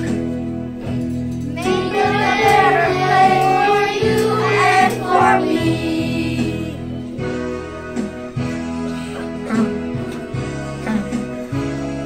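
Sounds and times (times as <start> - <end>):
instrumental accompaniment: 0.0 - 12.0
children singing: 1.6 - 6.8.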